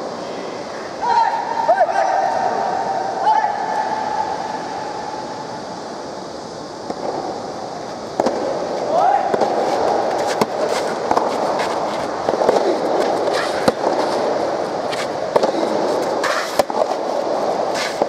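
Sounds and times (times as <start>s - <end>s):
steady background din: 0.0s - 18.0s.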